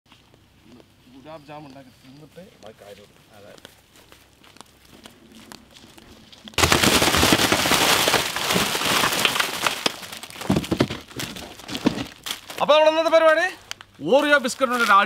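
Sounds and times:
plastic wrappers crackling and rustling: 0:05.8 - 0:15.0.

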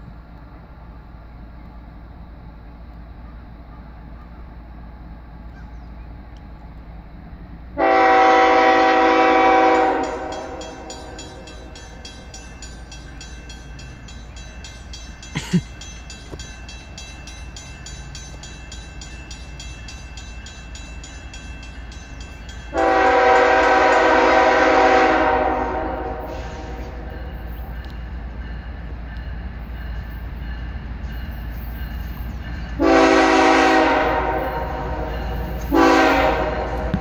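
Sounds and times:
distant locomotive horn blasts: 0:07.8 - 0:11.7, 0:22.7 - 0:27.2, 0:32.7 - 0:37.0
crossing bell ringing: 0:08.0 - 0:37.0.

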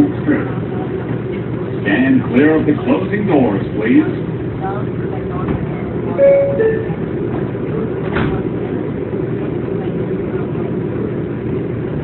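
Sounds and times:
train rumbling: 0:00.0 - 0:12.0
two-note door chime: 0:06.2 - 0:07.0.

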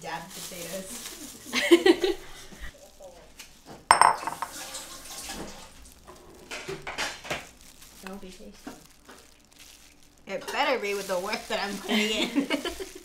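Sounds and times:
kitchen utensils handled: 0:03.9 - 0:04.6
metal utensil clinking on bowl: 0:03.9 - 0:04.6.

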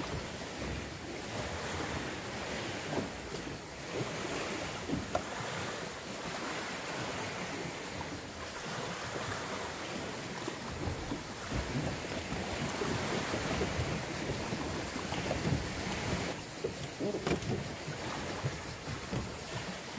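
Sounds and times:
sea water lapping: 0:00.0 - 0:19.9
wind on microphone: 0:00.0 - 0:19.9
water slaps: 0:08.7 - 0:19.9.

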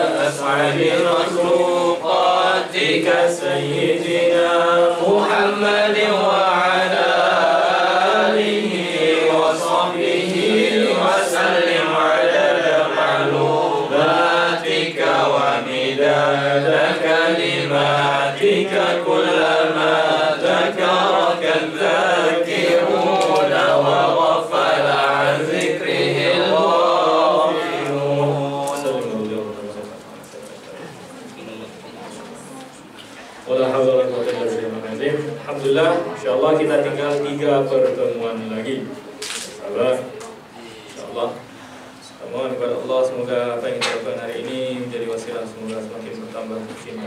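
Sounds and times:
man chanting into a microphone: 0:00.0 - 0:30.1.

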